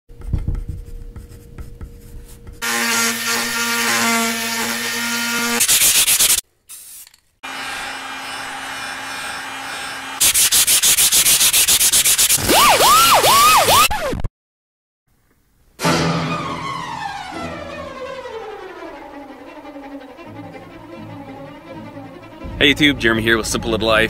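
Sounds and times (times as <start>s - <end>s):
sandpaper rubbing on wood: 1.2s - 6.4s, 10.2s - 12.4s.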